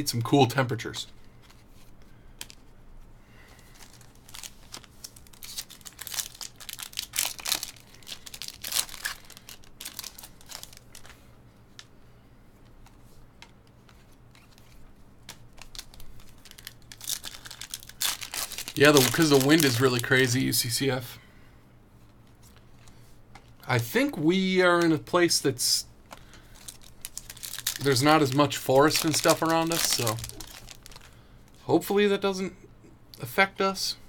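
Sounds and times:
foil wrapper crinkling and tearing: 3.5 - 11.2, 15.3 - 20.6, 26.1 - 31.2
cards being handled: 12.6 - 20.4, 26.1 - 31.1.

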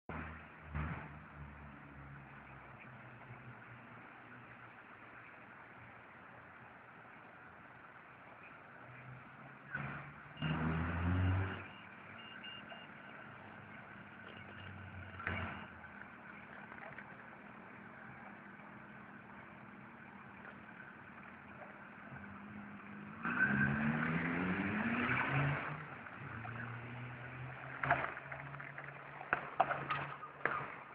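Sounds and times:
vehicle passing: 8.7 - 30.9
vehicle accelerating past: 9.0 - 12.2, 22.1 - 30.8.

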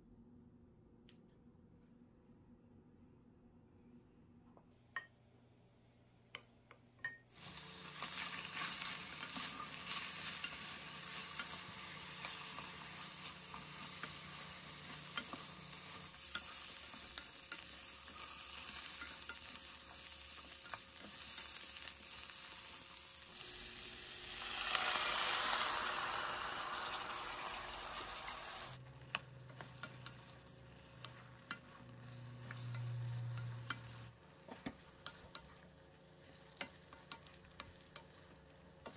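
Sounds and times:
peppers sizzling in a hot pan: 7.3 - 38.9
spatula taps and scrapes: 8.1 - 21.6, 29.0 - 38.9.

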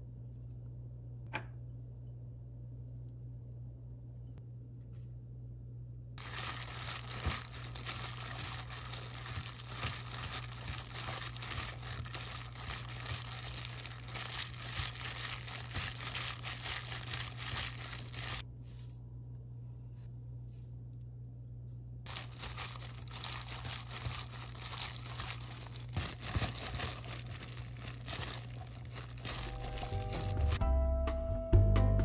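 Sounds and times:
plastic glove crinkling: 6.2 - 18.4, 22.1 - 30.6
wet leaves squishing: 6.2 - 18.4, 22.1 - 30.6.

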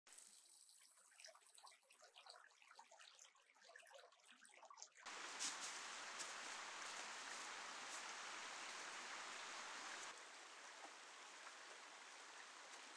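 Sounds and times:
water trickling and dripping: 0.1 - 12.9
rushing water hiss: 5.1 - 12.9.

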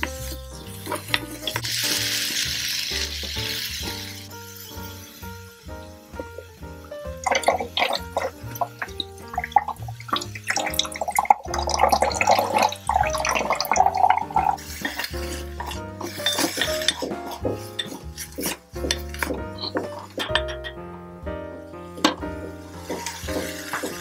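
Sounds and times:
hiss from tiny wok: 0.0 - 20.4, 21.7 - 24.0
background music: 0.0 - 24.0
water trickling into metal sink: 6.3 - 20.8, 22.0 - 24.0.

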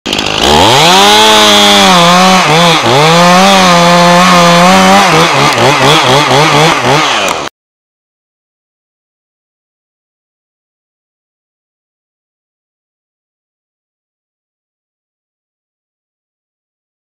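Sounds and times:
chainsaw cutting a tree trunk: 0.1 - 7.5.

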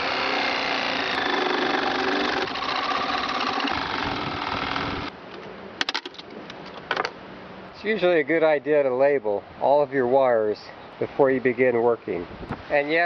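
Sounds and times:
power drill whining: 0.0 - 5.1.

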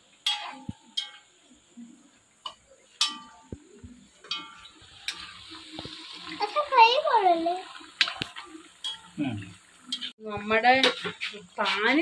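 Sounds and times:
faint sizzle of frying: 0.0 - 12.0
metal spoon clinking on wok: 0.2 - 1.3, 2.5 - 3.4.

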